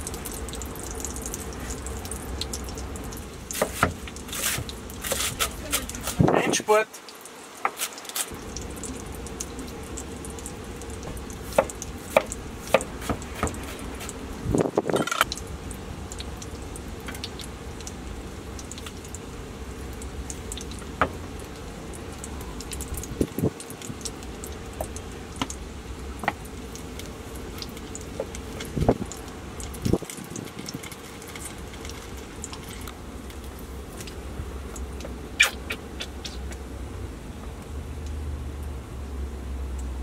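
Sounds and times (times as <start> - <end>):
burger patties frying and popping: 0.0 - 40.0
steady low hum: 8.3 - 40.0.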